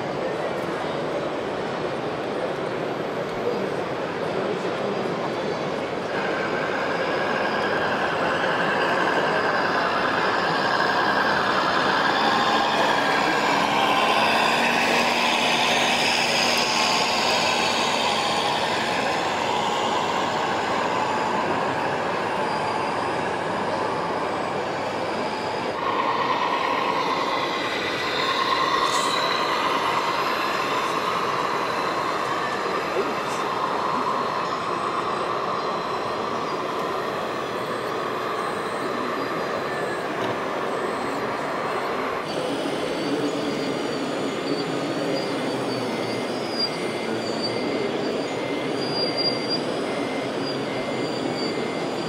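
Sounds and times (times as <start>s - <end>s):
electric model vehicle motors whirring: 25.6s - 52.0s.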